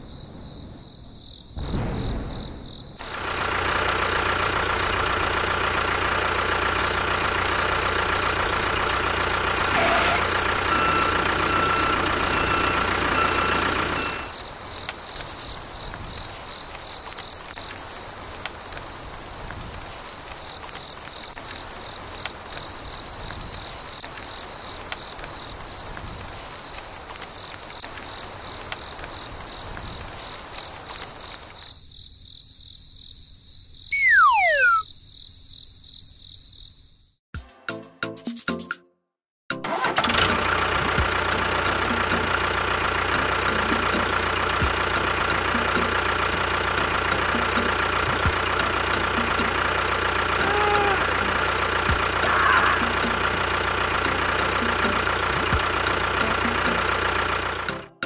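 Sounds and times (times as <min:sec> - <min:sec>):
crickets chirping: 0:00.0 - 0:03.1, 0:14.0 - 0:37.2.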